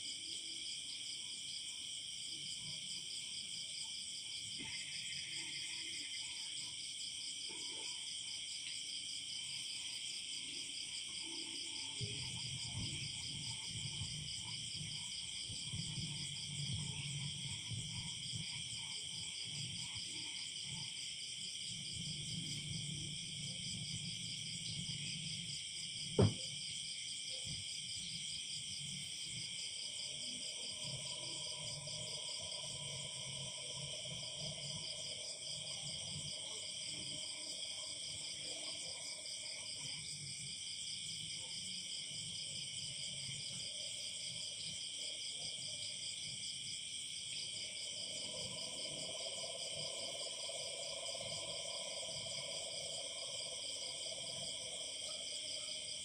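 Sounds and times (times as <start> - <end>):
crickets trilling: 0.1 - 56.0.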